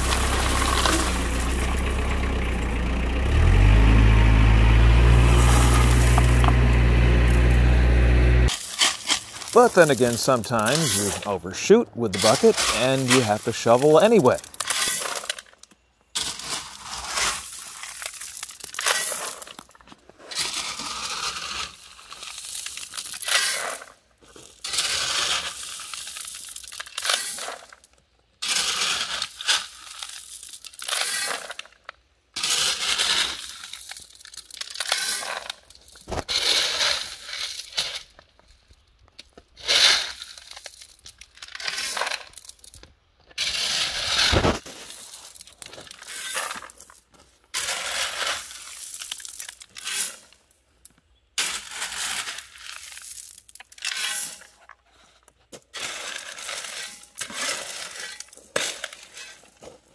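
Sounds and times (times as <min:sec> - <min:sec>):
stones rattling and clinking: 0:00.0 - 0:02.4, 0:12.1 - 0:50.4, 0:51.4 - 0:54.8
shovel scraping into stones: 0:08.5 - 0:15.5, 0:16.2 - 0:27.8, 0:28.4 - 0:31.7, 0:32.4 - 0:38.2, 0:39.6 - 0:50.3, 0:51.4 - 0:59.9.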